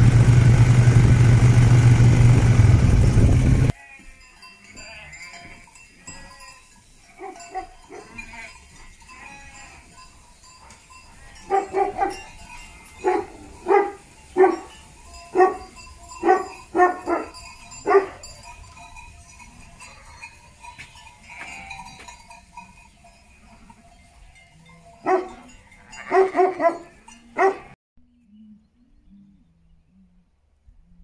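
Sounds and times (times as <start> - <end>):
sheep bleating: 3.7 - 6.5, 7.1 - 10.0, 21.2 - 22.1, 24.6 - 27.7.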